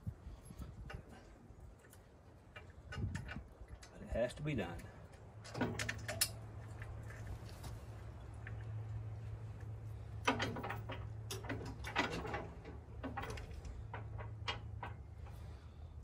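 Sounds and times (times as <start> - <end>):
metal clunks and rattles: 5.4 - 6.5, 10.0 - 15.6.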